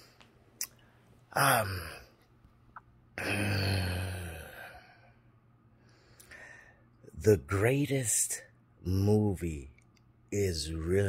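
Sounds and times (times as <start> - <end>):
man sighing: 3.2 - 5.1.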